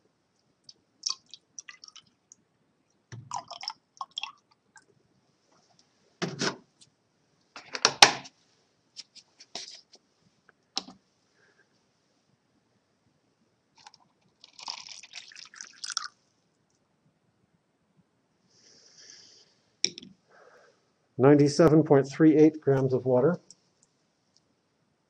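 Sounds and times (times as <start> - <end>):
water pouring and splashing: 1.0 - 2.1, 13.8 - 16.1.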